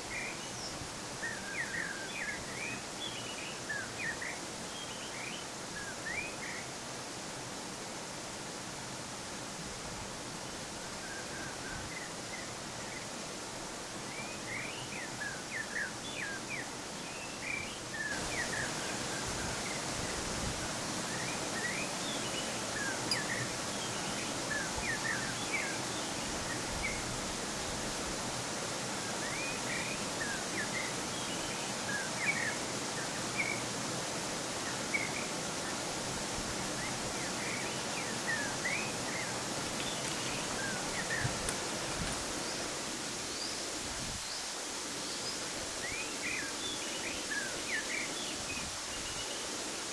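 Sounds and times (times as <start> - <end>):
waterfall rushing: 5.5 - 49.9
small birds chirping: 14.0 - 27.7, 34.4 - 49.6.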